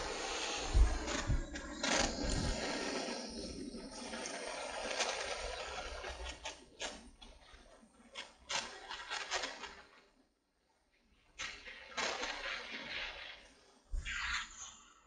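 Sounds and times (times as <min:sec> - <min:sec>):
gas torch flame hissing: 0:00.0 - 0:07.1.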